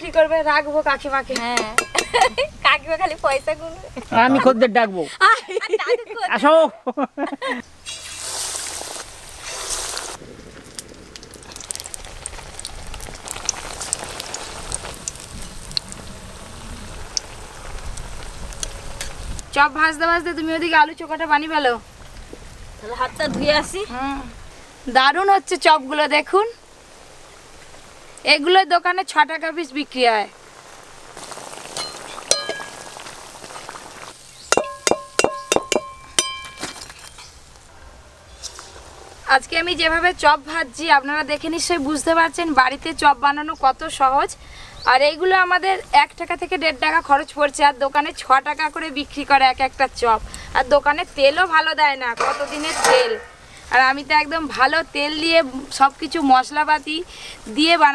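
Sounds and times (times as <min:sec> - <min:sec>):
oil sizzling with pops: 0:00.0 - 0:04.2, 0:07.6 - 0:37.7, 0:38.3 - 0:57.9
metal ladle clinking on pan rim: 0:01.4 - 0:02.3, 0:31.8 - 0:32.9, 0:34.5 - 0:37.4.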